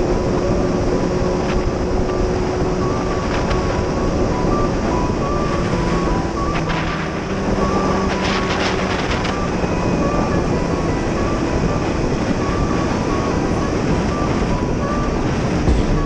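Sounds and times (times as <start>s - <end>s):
wind noise on microphone: 0.0s - 16.0s
motorcycle engine running: 11.2s - 16.0s.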